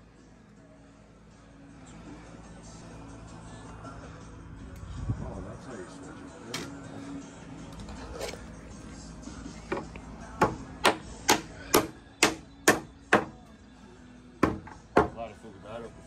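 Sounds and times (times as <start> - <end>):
hammer driving nails into wood: 10.4 - 13.3.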